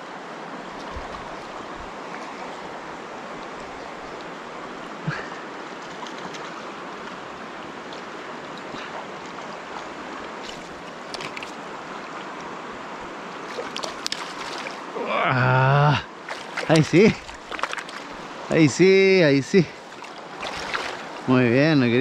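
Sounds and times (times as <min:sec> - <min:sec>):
river rushing over stones: 0:00.0 - 0:22.0.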